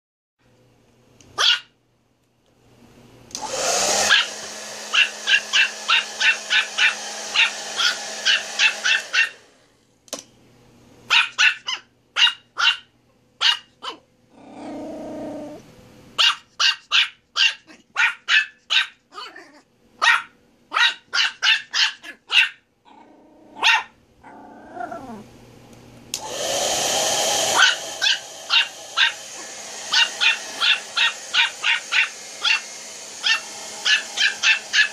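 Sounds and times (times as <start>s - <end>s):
small dog yapping: 1.4s - 1.7s, 3.9s - 9.4s, 11.1s - 14.0s, 16.2s - 22.6s, 23.5s - 25.2s, 27.4s - 34.9s.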